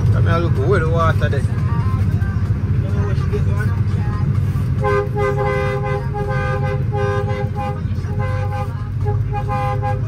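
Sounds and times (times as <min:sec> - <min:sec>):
diesel truck engine running: 0:00.0 - 0:10.0
vehicle horn short blasts: 0:04.8 - 0:10.0.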